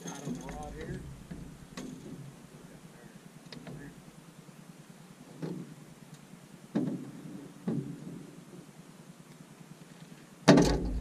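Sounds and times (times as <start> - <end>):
hollow knocks on metal hull: 0.5 - 2.0.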